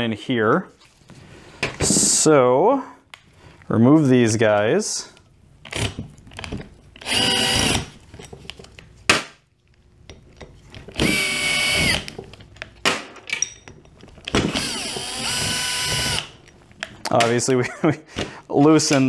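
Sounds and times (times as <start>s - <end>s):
power drill motor whine: 7.0s - 7.9s, 11.0s - 12.1s, 14.5s - 16.3s.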